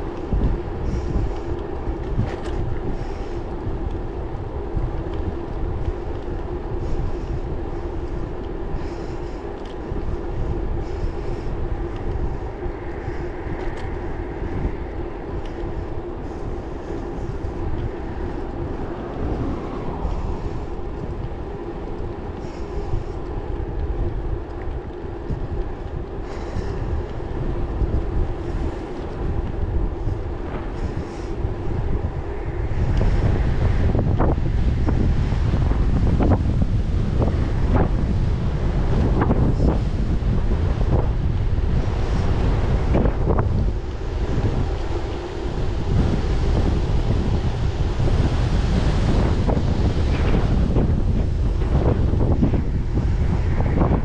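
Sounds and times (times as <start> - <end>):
tyre noise on asphalt: 0.0 - 54.0
wind rumbling on microphone: 0.0 - 54.0.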